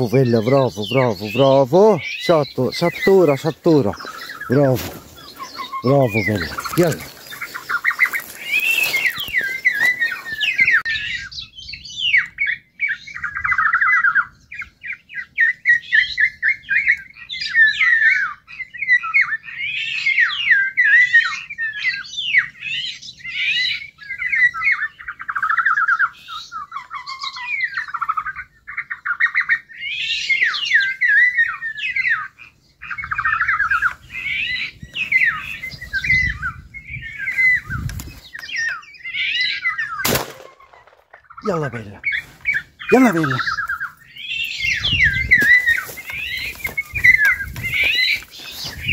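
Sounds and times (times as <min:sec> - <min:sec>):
birds squawking and chirping: 0:00.0 - 0:48.9
rustling through grass: 0:02.2 - 0:10.8, 0:37.1 - 0:38.7, 0:44.6 - 0:48.9.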